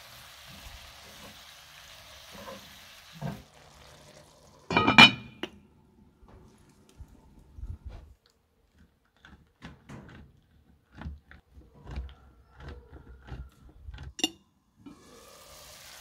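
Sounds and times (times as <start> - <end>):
pan sizzling: 0.0 - 5.5, 14.8 - 16.0
glass pan lid clink: 4.7 - 5.4.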